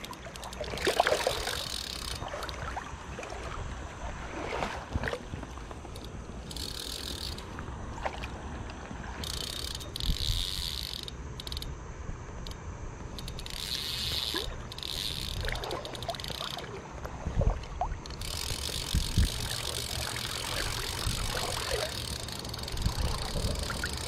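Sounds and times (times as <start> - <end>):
fishing reel drag ratcheting: 0.0 - 2.7, 5.8 - 7.6, 9.2 - 11.8, 12.4 - 16.8, 18.0 - 24.0.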